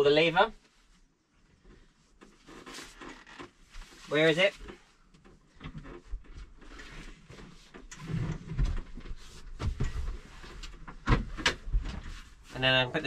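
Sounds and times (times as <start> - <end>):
seat mechanism clicks and clunks: 7.6 - 12.1.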